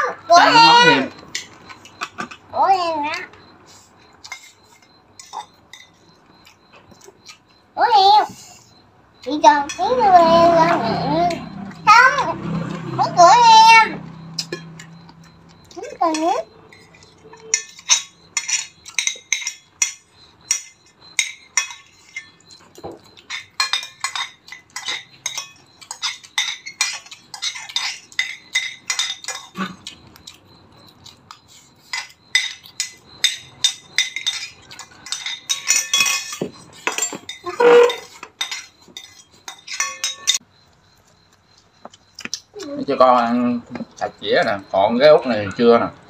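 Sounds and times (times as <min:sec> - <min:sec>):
spoons clinking on ceramic plates: 0:04.2 - 0:07.5, 0:14.3 - 0:30.3, 0:31.4 - 0:40.4.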